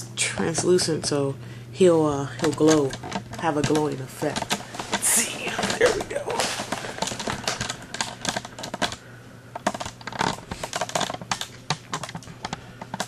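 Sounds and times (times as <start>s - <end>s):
plastic packaging clicks and taps: 5.6s - 9.0s.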